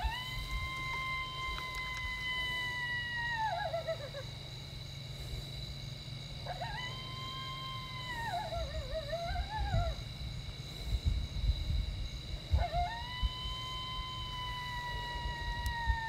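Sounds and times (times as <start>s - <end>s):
coyote howling: 0.0s - 4.5s, 6.4s - 10.4s, 12.4s - 16.0s.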